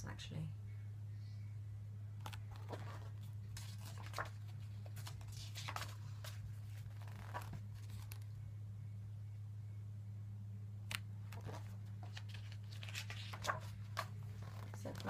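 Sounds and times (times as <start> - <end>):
low hum: 0.5 - 15.0
book pages rustling: 2.2 - 8.4, 10.9 - 15.0.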